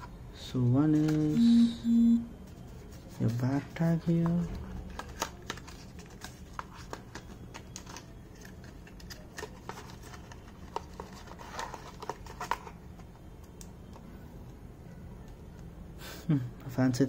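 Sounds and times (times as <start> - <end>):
steady low hum: 1.2 - 2.5
packaging clicks and rustles: 3.5 - 14.0.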